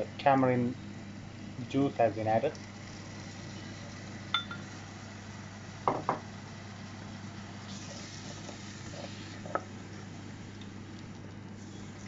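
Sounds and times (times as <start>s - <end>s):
steady low hum: 0.0s - 12.0s
spoon knocking on a saucepan: 5.9s - 6.2s.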